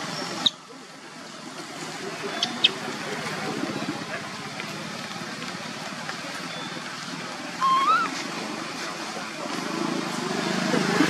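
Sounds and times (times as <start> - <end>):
baby monkey squeaky call: 7.6 - 8.1.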